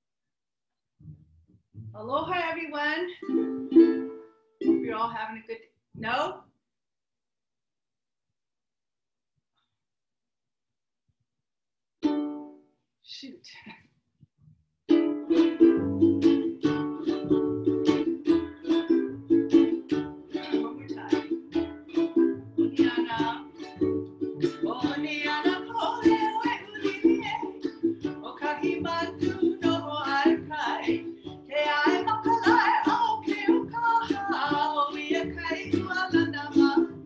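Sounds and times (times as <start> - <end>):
plucked double bass: 1.0 - 2.6, 14.9 - 37.0
ukulele strumming: 3.2 - 5.2, 12.0 - 12.6, 14.9 - 37.0
woman singing: 22.7 - 23.7, 24.4 - 37.0.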